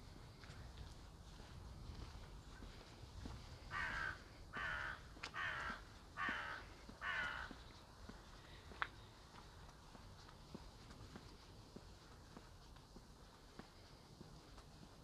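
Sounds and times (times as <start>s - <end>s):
crow cawing: 3.7s - 7.6s.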